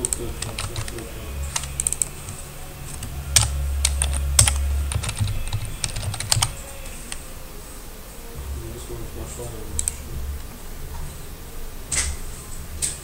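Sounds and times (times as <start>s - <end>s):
low hum: 0.0s - 13.0s
typing on computer keyboard: 0.1s - 2.1s, 3.4s - 6.6s.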